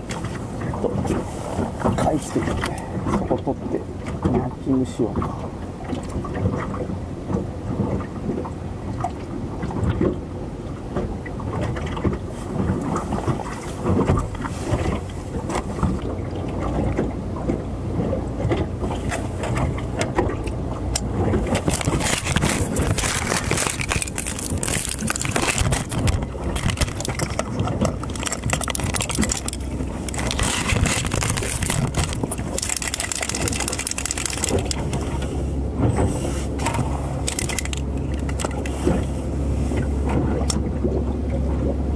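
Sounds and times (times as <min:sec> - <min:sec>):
waves slapping boat hull: 0:00.0 - 0:41.9
wind buffeting microphone: 0:00.0 - 0:41.9
knocks and scrapes: 0:21.3 - 0:39.1.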